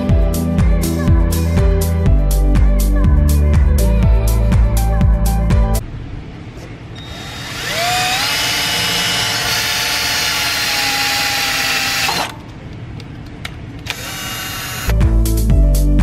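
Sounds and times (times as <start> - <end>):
cordless drill boring through metal: 7.0 - 12.3, 13.9 - 14.9.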